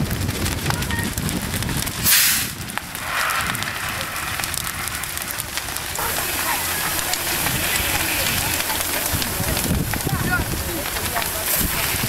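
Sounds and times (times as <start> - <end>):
fire crackling and popping: 0.0 - 12.0
short loud hiss: 2.0 - 4.8.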